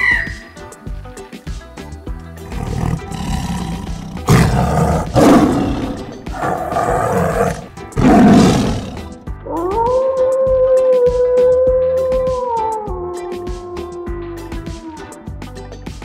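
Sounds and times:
background music: 0.0 - 16.0
tiger roaring: 2.5 - 9.6.

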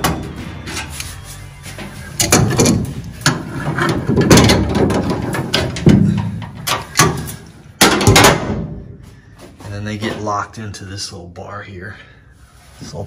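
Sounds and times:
cables rattling: 1.8 - 8.4
metal clicks and knocks: 2.2 - 8.6.

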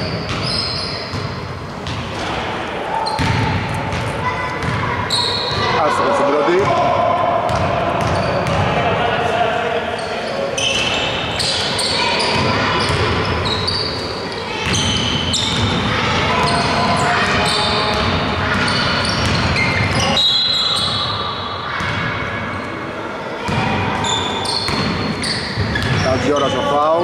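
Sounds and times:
shoe squeaks: 0.0 - 1.4, 3.0 - 3.3, 4.6 - 5.9, 8.0 - 8.6, 10.0 - 15.7, 16.3 - 21.3, 24.0 - 27.0
basketball bouncing on court: 0.0 - 2.1, 3.0 - 4.9, 6.5 - 8.8, 14.6 - 20.1, 23.5 - 23.8, 24.6 - 26.5
players calling out: 2.3 - 22.8.

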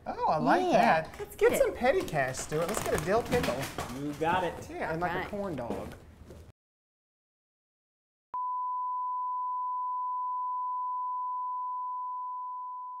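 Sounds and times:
steady test tone beep: 8.4 - 13.0.

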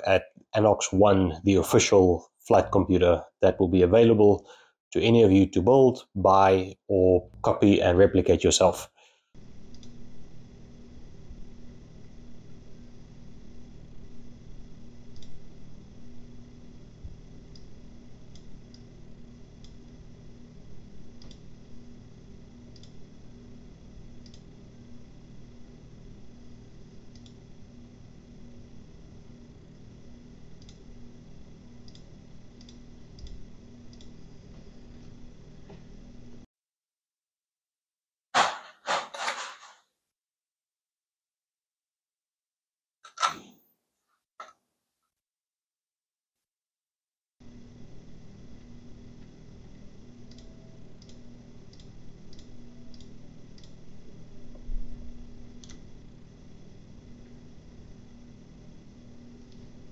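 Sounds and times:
faint low hum: 0.0 - 36.5, 47.4 - 59.9
computer mouse clicking: 9.7 - 10.0, 21.2 - 21.4, 22.7 - 23.0, 24.2 - 24.5, 27.1 - 27.4, 30.6 - 30.8, 31.8 - 34.2, 50.2 - 53.8, 55.6 - 55.8.

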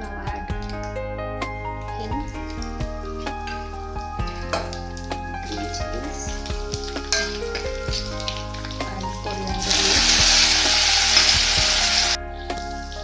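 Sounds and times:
hot oil crackling: 1.9 - 13.0
loud sizzle of leaves in oil: 4.3 - 13.0.

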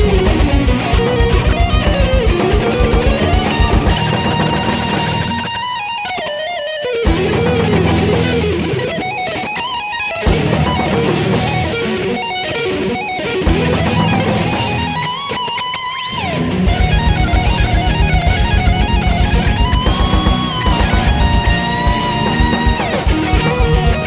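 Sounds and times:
heavy rock electric guitar music: 0.0 - 24.0
rapid low pulse: 16.7 - 22.8.

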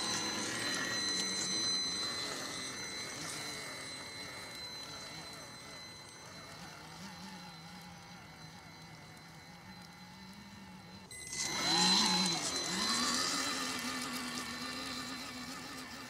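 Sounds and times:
electric motor whine: 0.0 - 16.0.

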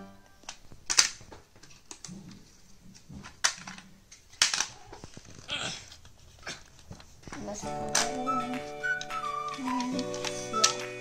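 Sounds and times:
plastic snaps: 0.3 - 2.4, 3.2 - 11.0
plastic toy parts clicking: 0.4 - 2.2, 3.2 - 6.0, 6.6 - 8.2, 8.8 - 10.9.

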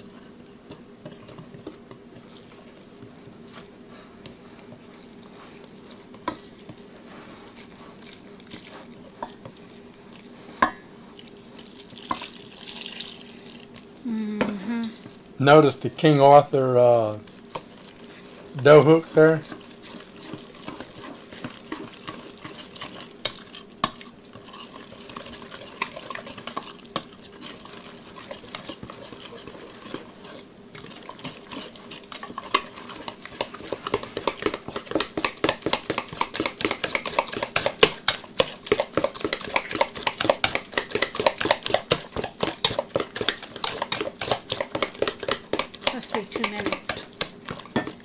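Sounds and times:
dough squelching: 16.5 - 48.0
dough hook scraping metal bowl: 18.6 - 47.9.

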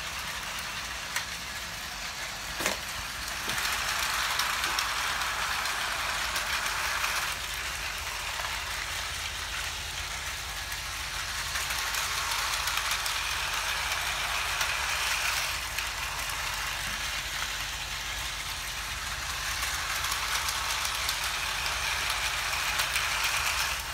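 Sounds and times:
toy train motor whirring: 0.0 - 23.9
wheels rattling on plastic track: 0.0 - 23.9.

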